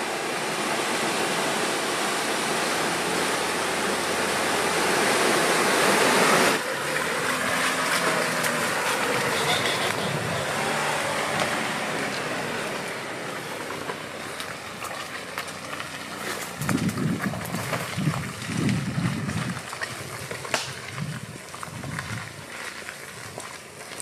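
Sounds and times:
low rumbling surges with crackles: 0.0 - 24.0
vehicle engine driving past: 3.0 - 19.2.

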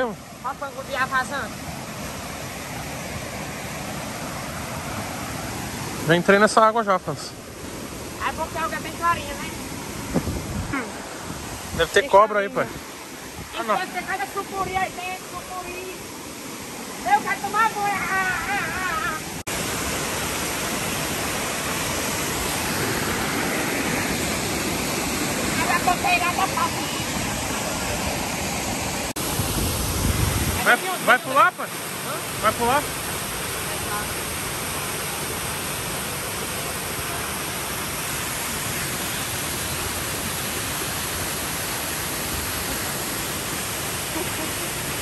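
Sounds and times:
water rushing over rocks: 0.0 - 45.0.

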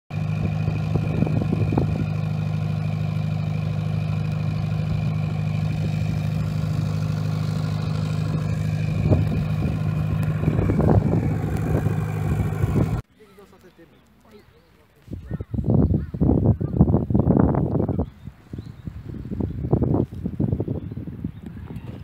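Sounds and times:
engine droning: 0.1 - 13.0.

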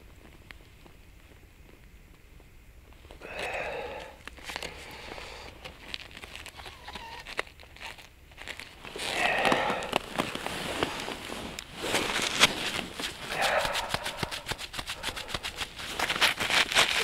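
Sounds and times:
rustling handling noise: 0.0 - 17.0.

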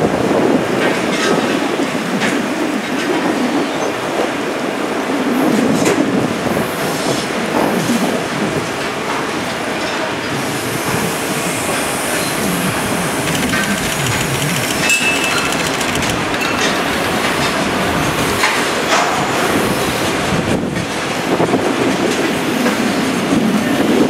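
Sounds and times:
high wheel tones: 11.6 - 17.4
wheels clacking over rail joints: 12.4 - 19.1.

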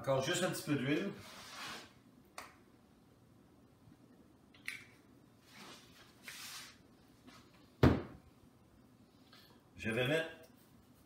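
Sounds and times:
soft hissing: 5.4 - 7.4.

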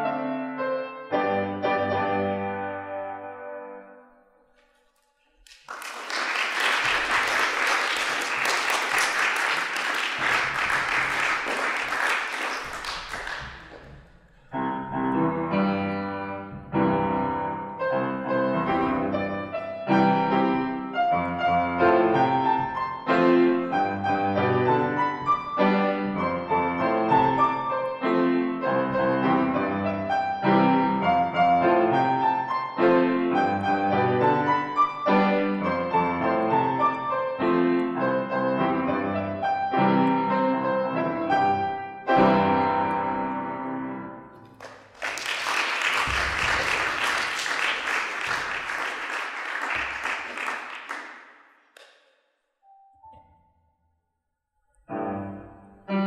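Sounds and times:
piano piece: 0.0 - 51.9, 54.7 - 56.0
audience applause: 5.4 - 14.1, 44.5 - 51.4.

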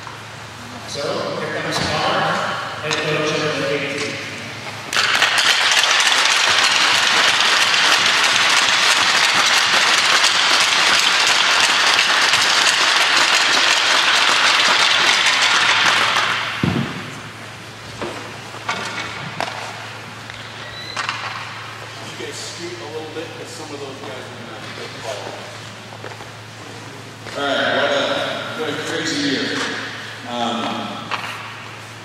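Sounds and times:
crowd applauding: 4.9 - 16.6.

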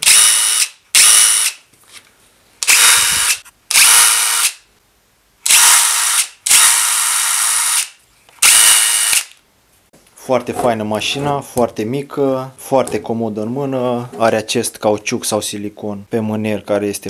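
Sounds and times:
impact driver whirring: 0.0 - 1.6, 2.6 - 4.6, 5.4 - 9.4.

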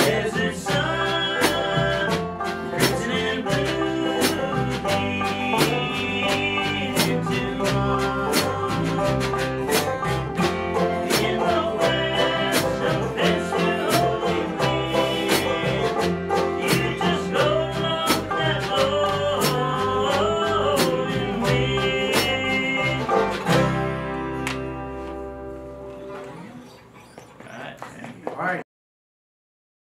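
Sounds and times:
man singing: 0.0 - 24.0
bluegrass band playing: 0.0 - 27.5.

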